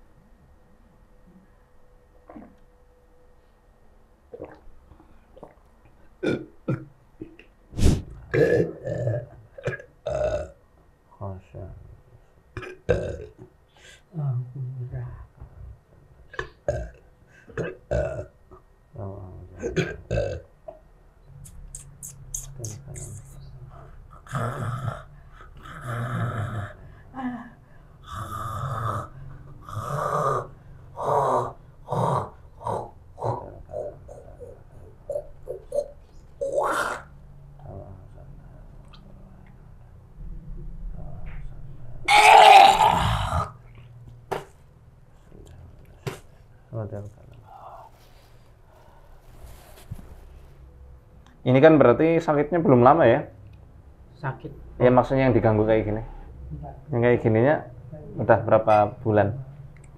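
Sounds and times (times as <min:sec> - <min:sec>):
man belching: 0:06.2 - 0:06.9, 0:08.3 - 0:10.6, 0:12.6 - 0:13.5, 0:16.4 - 0:18.4, 0:19.6 - 0:20.5, 0:42.1 - 0:43.6.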